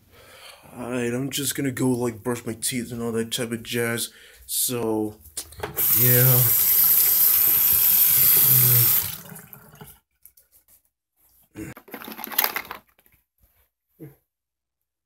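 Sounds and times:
rustling handling noises: 10.1 - 13.7.

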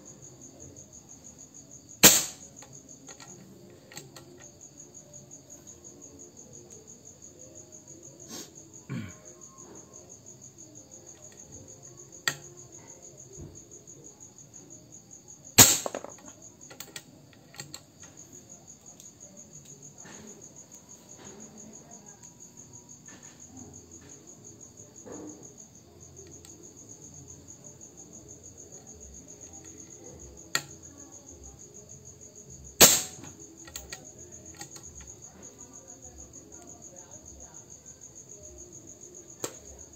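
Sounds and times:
crickets chirping: 0.0 - 39.9
air rifle shot: 2.0 - 2.4, 15.6 - 16.2, 32.8 - 33.3.

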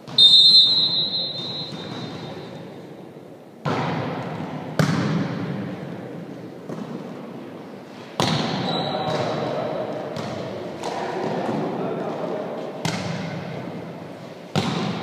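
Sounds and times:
referee's whistle: 0.1 - 2.6, 8.4 - 9.0
volleyball being struck: 0.1 - 2.6, 14.5 - 15.0.

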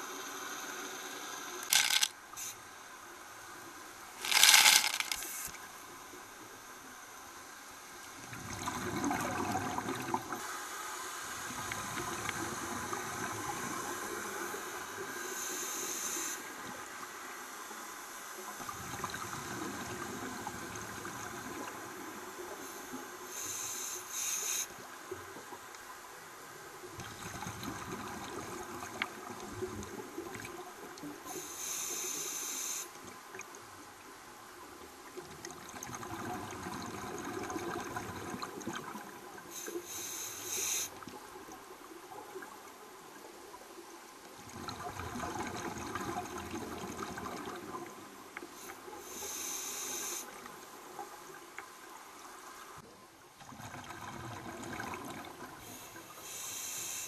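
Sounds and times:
regulator breathing hiss: 0.0 - 2.8, 14.2 - 16.6, 22.6 - 24.8, 31.3 - 33.0, 39.5 - 41.0, 48.5 - 50.4, 55.6 - 57.0
underwater bubbling: 8.2 - 10.4, 44.4 - 49.2, 53.4 - 55.8.

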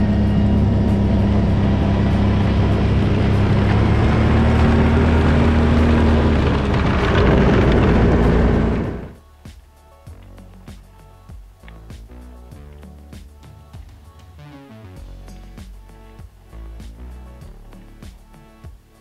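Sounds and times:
snowmobile engine running: 0.0 - 9.2.

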